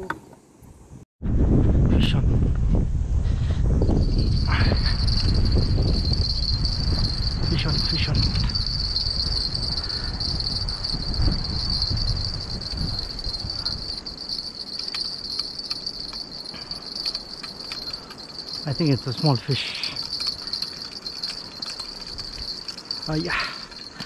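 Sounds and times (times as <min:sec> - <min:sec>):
low rumbling noise: 0:01.2 - 0:19.1
insects droning: 0:03.8 - 0:24.0.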